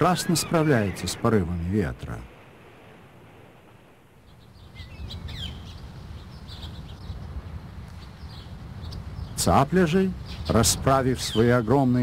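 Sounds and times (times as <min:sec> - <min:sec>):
sweeping whistled bird calls: 0:00.0 - 0:01.3, 0:04.2 - 0:07.3, 0:10.2 - 0:11.9
birds chirping: 0:00.0 - 0:12.0.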